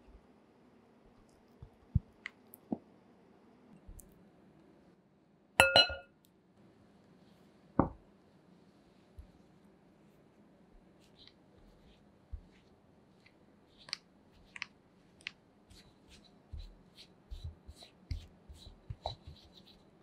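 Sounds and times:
sharp clink on glass bowl: 5.6s - 6.1s.

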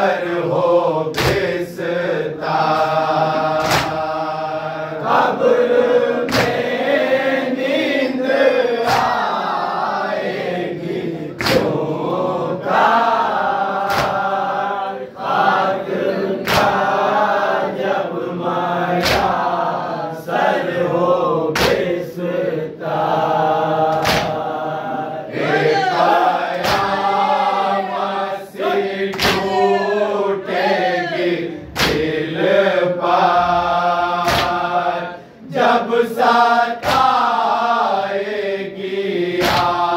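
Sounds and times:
men chanting in unison: 0.0s - 39.9s
chest-beating slaps: 1.1s - 1.6s, 2.6s - 4.2s, 6.2s - 6.8s, 8.8s - 9.4s, 11.4s - 11.9s, 13.8s - 14.4s, 16.4s - 17.0s, 19.0s - 19.5s, 21.5s - 22.0s, 23.9s - 24.5s, 26.0s - 27.4s, 29.1s - 29.9s, 31.1s - 32.3s, 34.2s - 34.8s, 36.8s - 37.4s, 39.3s - 39.9s.

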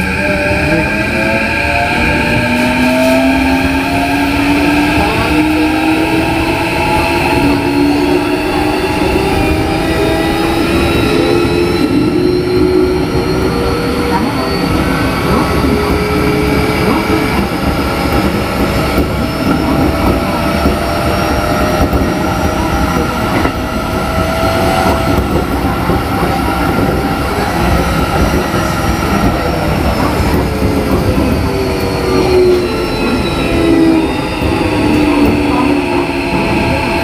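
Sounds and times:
wheels rumbling on rail: 0.0s - 37.0s.

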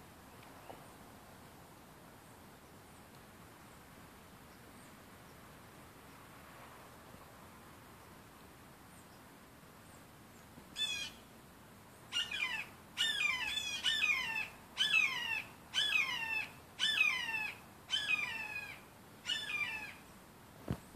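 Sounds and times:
hawk calling: 12.2s - 20.0s.

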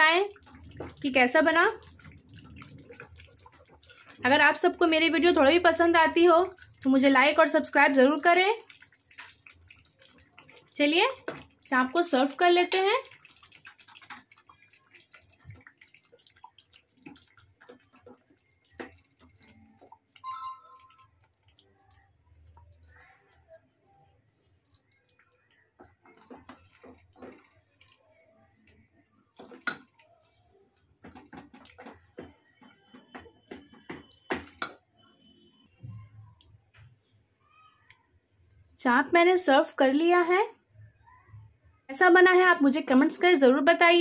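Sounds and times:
wet squelches of gravy: 0.3s - 4.6s, 8.2s - 20.2s, 20.8s - 34.6s
wooden spatula knocking metal pot: 31.0s - 34.8s.

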